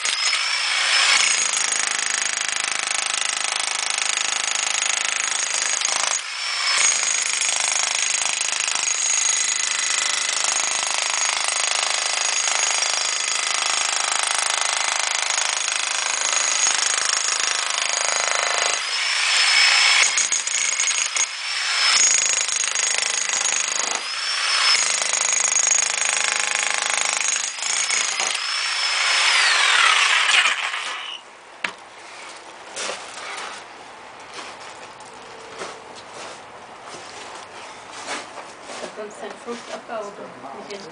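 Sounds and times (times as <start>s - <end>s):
demolition hammer chiselling brick: 0.0s - 31.2s.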